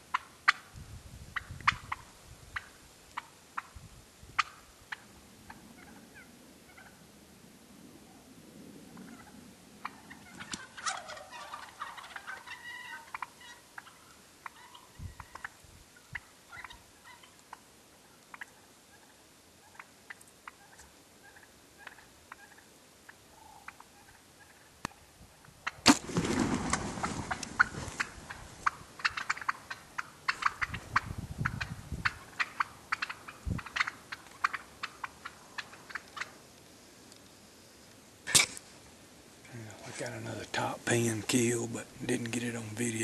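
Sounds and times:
turkeys clucking softly: 0:00.1 - 0:00.8, 0:01.4 - 0:43.0
rustling: 0:25.9 - 0:30.6.

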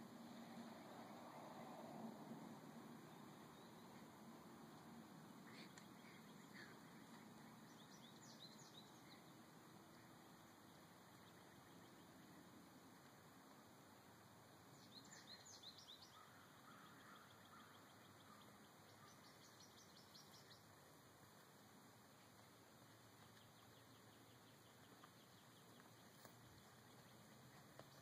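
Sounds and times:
faint steady hiss: 0:00.0 - 0:28.0
birds chirping: 0:02.9 - 0:13.6, 0:14.4 - 0:20.8, 0:22.2 - 0:28.0.

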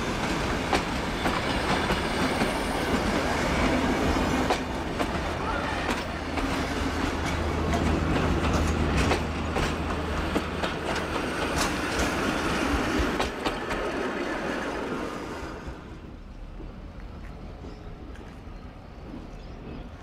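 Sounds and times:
train wheels clicking over rail joints: 0:00.0 - 0:15.1.

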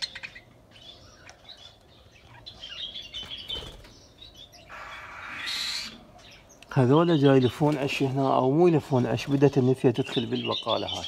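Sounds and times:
small birds chirping: 0:00.0 - 0:11.0
wings fluttering: 0:03.2 - 0:04.0.

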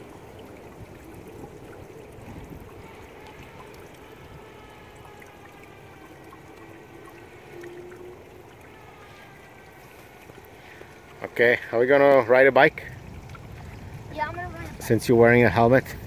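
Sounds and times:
water trickling and splashing: 0:00.0 - 0:16.0.

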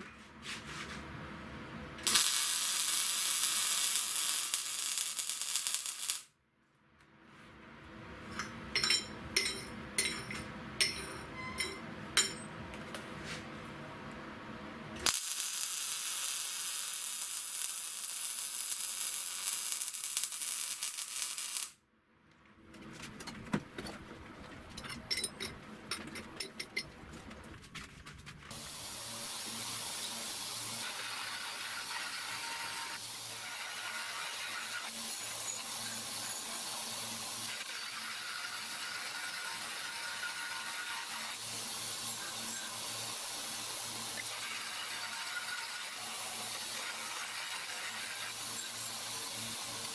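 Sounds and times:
welding arc crackling: 0:02.0 - 0:06.3, 0:15.0 - 0:21.8
belt grinder grinding steel: 0:30.7 - 0:43.1.

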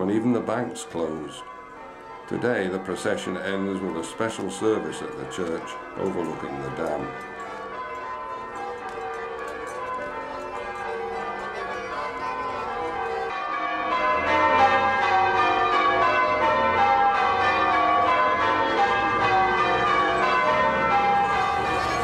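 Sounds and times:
church bells ringing changes: 0:00.0 - 0:22.0.

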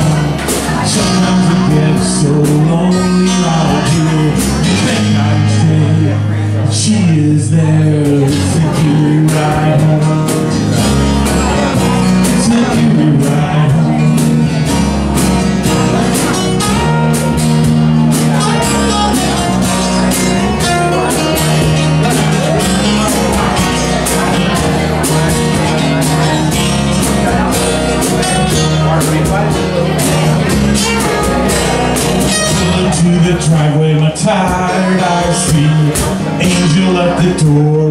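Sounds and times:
acoustic guitars strumming: 0:00.0 - 0:37.9
steady beat: 0:08.0 - 0:37.4.

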